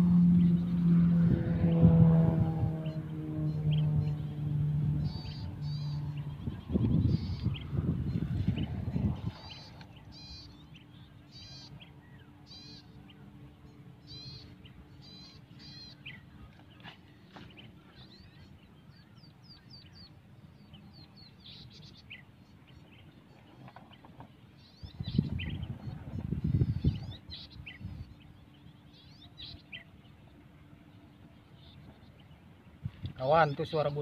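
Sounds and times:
birds chirping: 0.0 - 34.0.

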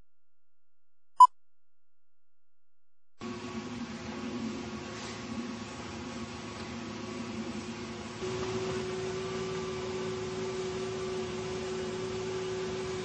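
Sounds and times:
bulldozer engine running: 6.0 - 13.0.

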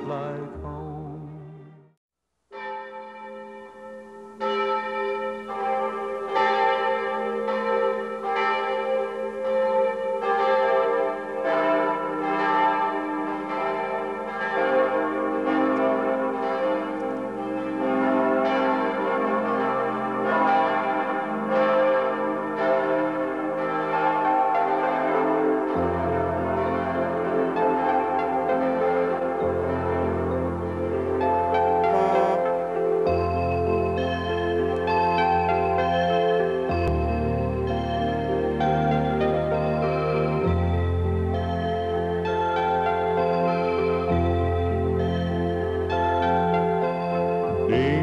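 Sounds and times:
church bells ringing: 2.5 - 48.0.

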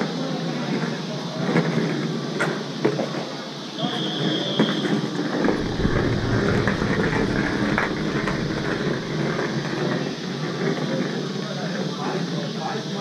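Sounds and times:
steady noisy rumble: 5.4 - 10.6.

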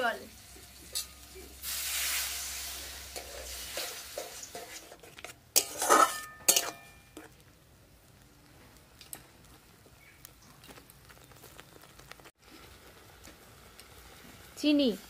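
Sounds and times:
sizzling: 0.0 - 15.0
spatula scraping paste in pan: 3.2 - 7.4
spatula clanking against pan: 5.6 - 7.2.

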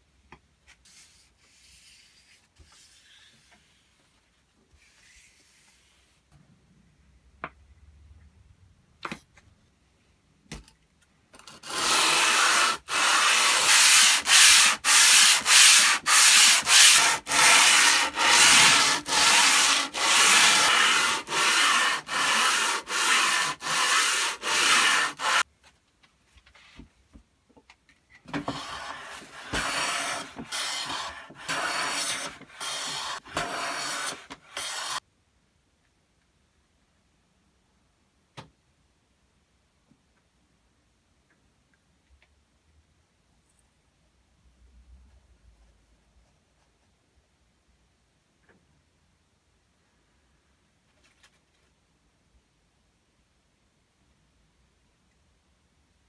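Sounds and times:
hand plane cutting shavings: 11.6 - 25.4, 28.5 - 35.0
plane rubbed on abrasive paper: 11.6 - 25.4, 28.5 - 35.0.

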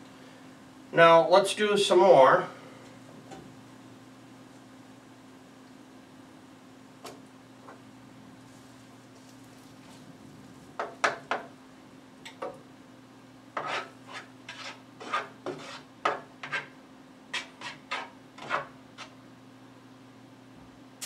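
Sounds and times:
utensil scraping a skillet: 13.5 - 19.2.

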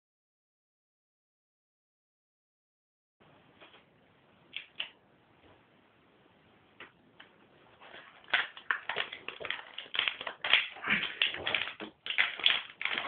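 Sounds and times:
plastic packet crinkling: 7.8 - 13.0.

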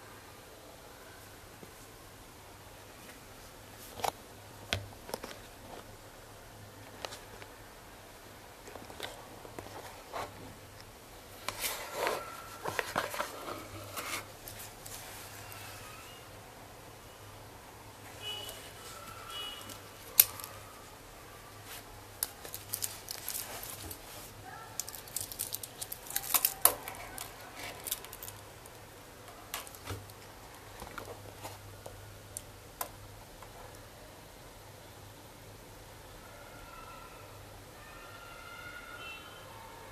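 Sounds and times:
rubbing and rustling: 11.4 - 15.9, 21.6 - 28.5.

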